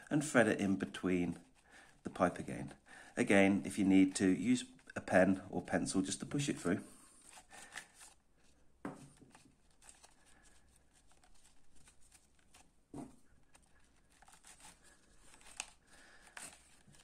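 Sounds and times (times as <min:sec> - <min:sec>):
webbing rustling and scraping: 0:13.3 - 0:17.0.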